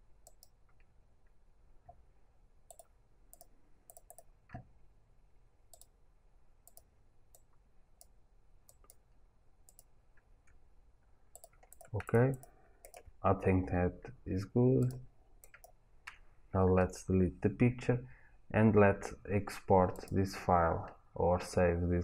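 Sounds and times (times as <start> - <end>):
faint computer mouse clicks: 0.2 - 0.9, 2.7 - 4.7, 5.7 - 5.9, 6.6 - 9.0, 9.7 - 9.9, 11.3 - 13.1.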